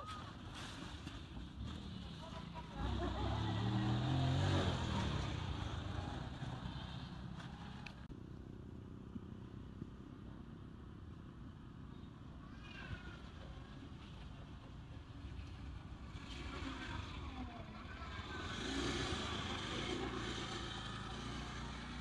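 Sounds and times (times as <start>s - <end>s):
motor vehicle passing: 0.0s - 8.1s, 13.6s - 22.0s.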